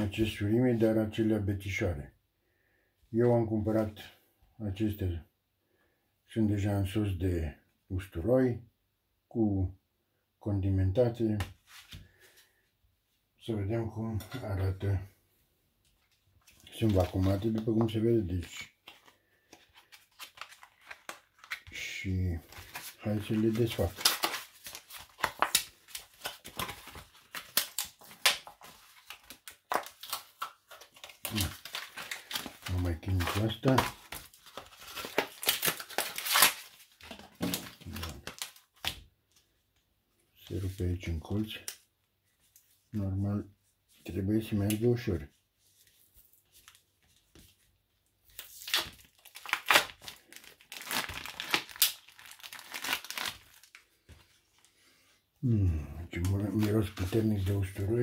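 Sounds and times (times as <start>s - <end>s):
plastic food tray crinkling: 16.4s - 38.9s, 48.4s - 53.9s.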